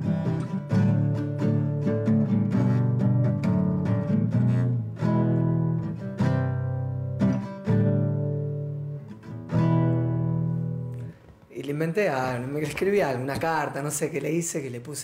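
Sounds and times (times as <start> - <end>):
classical guitar played slowly: 0.0 - 11.5.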